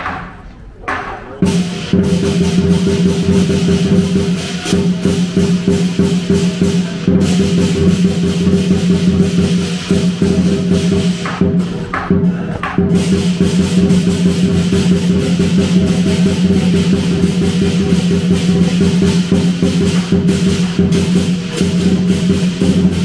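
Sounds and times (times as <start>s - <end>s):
cymbals ringing: 0.0s - 23.0s
drum beating fast rhythm: 0.0s - 23.0s
gong ringing: 12.9s - 23.0s.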